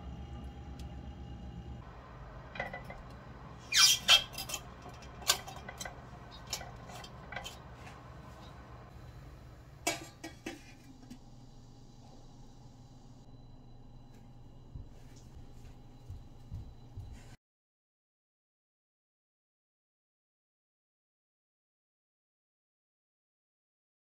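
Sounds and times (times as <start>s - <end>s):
plate clinking in metal steamer pot: 4.1s - 7.7s.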